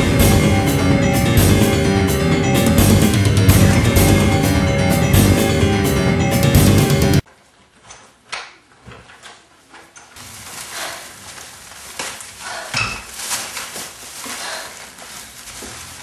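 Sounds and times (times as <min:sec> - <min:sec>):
plastic bag rustling: 0:10.2 - 0:16.0.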